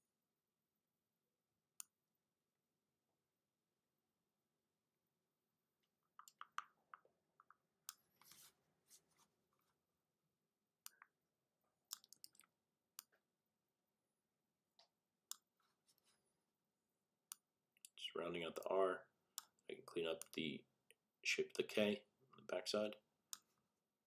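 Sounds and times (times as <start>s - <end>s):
computer mouse clicks: 6.2s - 8.0s, 11.9s - 13.1s.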